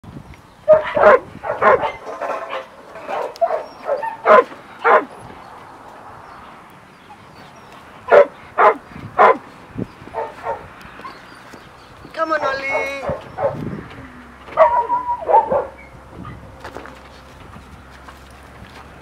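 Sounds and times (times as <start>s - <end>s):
puppy barking and yelping: 0.7s - 5.2s, 7.0s - 9.4s, 10.0s - 11.6s, 12.7s - 13.7s, 14.5s - 16.5s.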